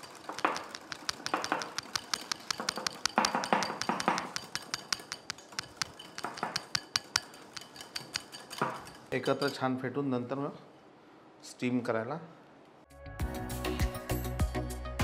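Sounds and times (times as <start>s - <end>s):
whisk clicking against glass bowl: 0.0s - 9.7s.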